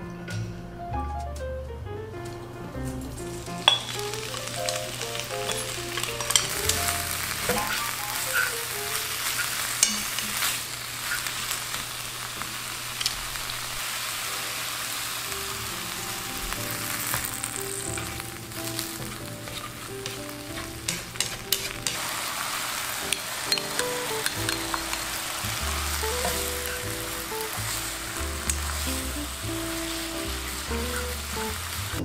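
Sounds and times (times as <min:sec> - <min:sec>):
greens sizzling in hot oil: 0:03.2 - 0:32.0
chopsticks tapping pan: 0:03.6 - 0:13.2, 0:16.5 - 0:31.8.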